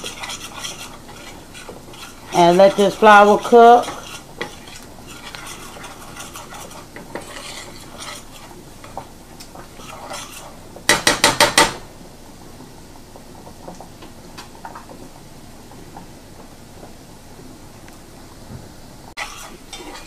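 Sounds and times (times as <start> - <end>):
whisk scraping a pan: 0.0 - 11.7, 19.1 - 20.0
faint sizzle: 0.0 - 20.0.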